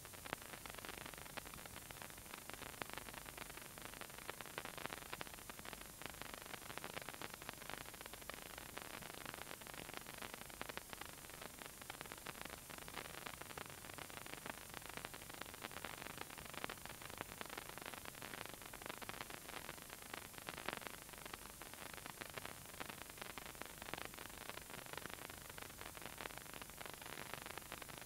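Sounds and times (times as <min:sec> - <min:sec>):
crackling static hiss with clicks: 0:00.0 - 0:28.0.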